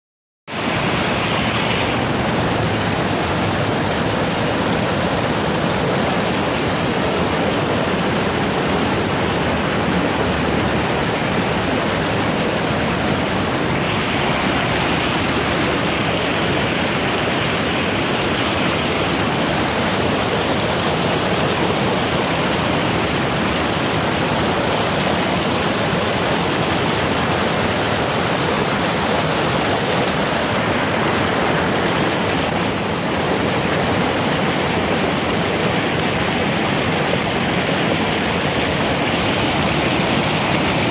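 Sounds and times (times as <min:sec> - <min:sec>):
creek water rushing over rocks: 0:00.5 - 0:40.9.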